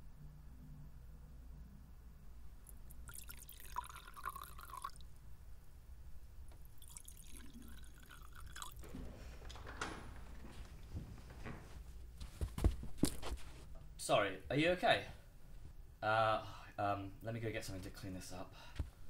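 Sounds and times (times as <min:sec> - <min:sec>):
liquid pouring into metal goblet: 0:02.7 - 0:05.1, 0:06.6 - 0:08.8.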